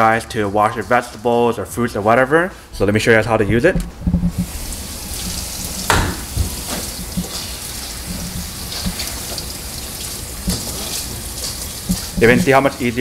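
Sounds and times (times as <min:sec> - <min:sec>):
faucet water spattering in colander: 0:04.4 - 0:13.0
sharp knock: 0:05.9 - 0:06.3.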